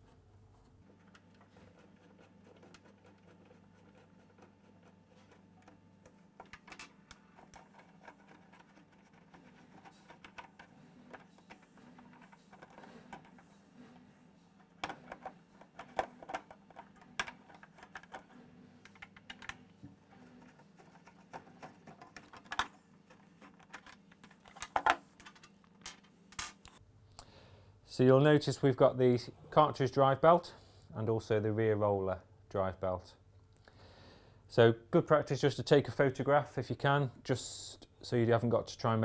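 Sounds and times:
plastic guard being handled: 14.6s - 26.6s.

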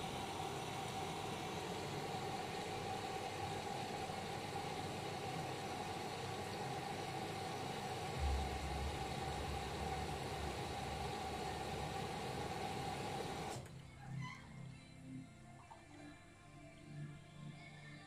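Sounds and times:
washing machine humming: 0.0s - 13.8s
deeper rumble: 8.2s - 12.0s.

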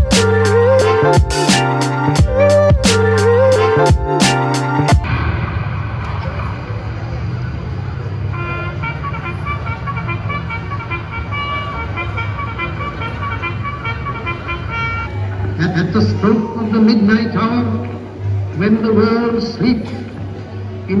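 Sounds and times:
music track: 0.0s - 5.6s
street traffic noise: 0.0s - 21.0s
vehicle horns tooting: 8.2s - 16.2s.

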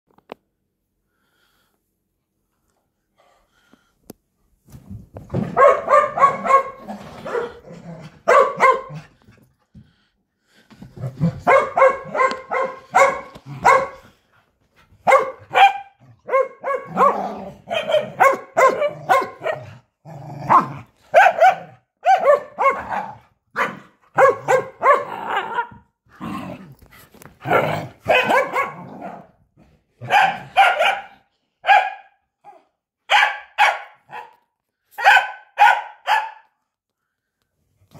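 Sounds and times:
dog barking excitedly: 5.3s - 9.2s, 11.1s - 14.1s, 15.0s - 19.8s, 20.5s - 25.8s, 27.4s - 29.4s, 30.0s - 34.4s, 35.0s - 36.6s.

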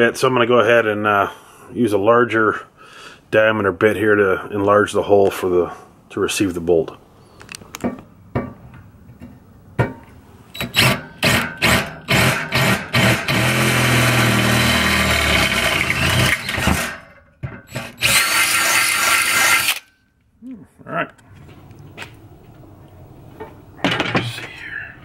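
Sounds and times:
electric drill drilling metal: 10.6s - 17.0s, 17.7s - 19.9s.

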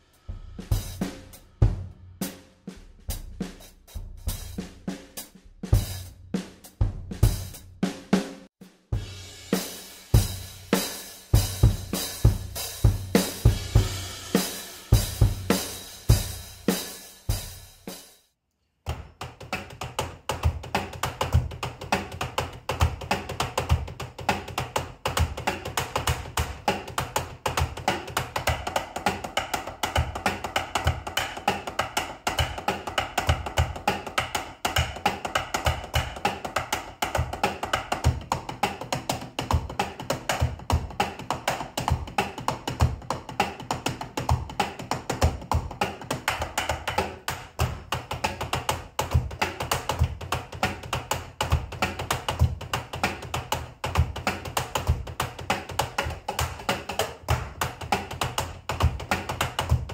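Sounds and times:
drumsticks tapping on rubber pads: 18.9s - 59.9s.

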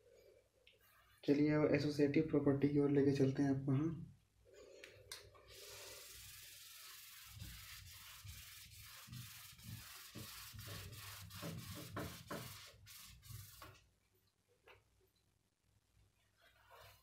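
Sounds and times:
eraser rubbing whiteboard: 5.5s - 13.9s, 16.4s - 17.0s.

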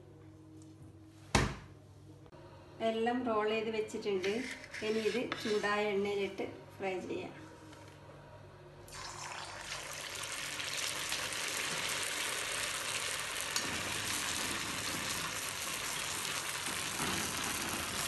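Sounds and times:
deep-frying sizzle in oil: 8.9s - 18.0s.

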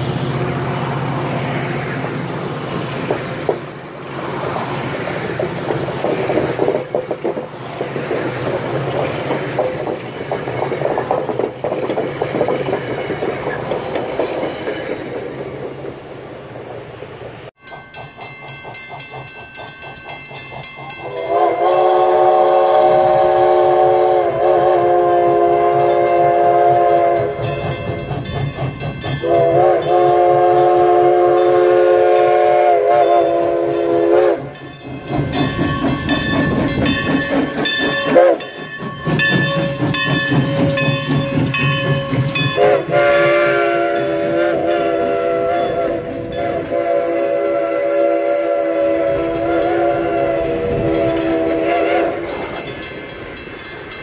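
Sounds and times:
train rumble: 0.0s - 54.0s
train horn chord blasts: 21.0s - 27.8s, 29.2s - 34.6s, 42.4s - 52.5s.

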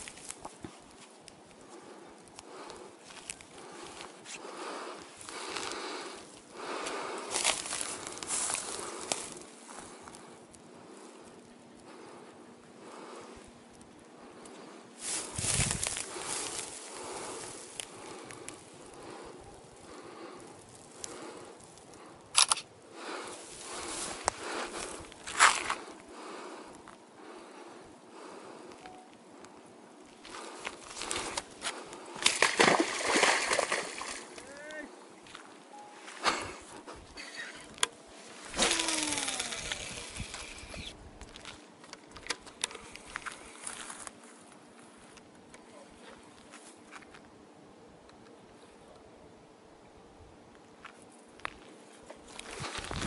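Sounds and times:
dry grass rustling: 0.0s - 11.7s, 14.5s - 22.1s, 22.9s - 27.0s, 30.0s - 34.5s, 35.2s - 41.9s, 50.9s - 53.0s
camera handling noise: 22.3s - 22.7s
fishing reel spool whirring: 38.5s - 41.0s.

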